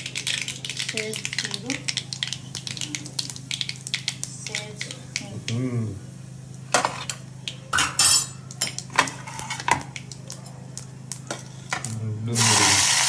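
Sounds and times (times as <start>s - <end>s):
seeds popping in hot oil: 0.0s - 5.7s, 8.4s - 13.0s
low steady hum: 0.0s - 12.8s
oil sizzling: 0.0s - 13.0s.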